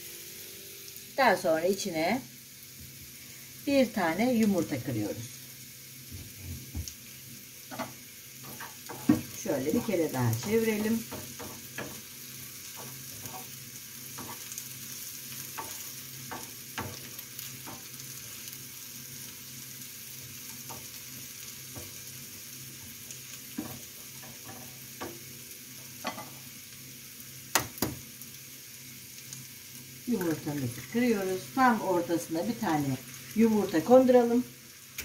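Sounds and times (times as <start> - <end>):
vegetables sizzling in a frying pan: 0.0 - 35.0
wooden spoon tapping and scraping pan: 7.7 - 12.1, 12.7 - 14.5, 15.4 - 18.0, 20.5 - 21.0, 21.7 - 22.0, 23.5 - 25.3, 26.0 - 26.4.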